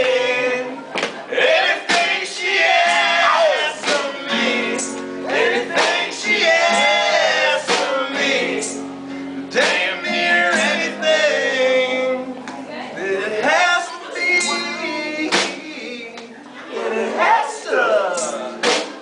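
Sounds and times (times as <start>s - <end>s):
strummed acoustic guitar: 0.0s - 12.4s, 13.2s - 16.1s, 18.1s - 19.0s
drum kit hits: 1.9s - 2.3s, 15.3s - 15.6s
person singing: 13.0s - 19.0s.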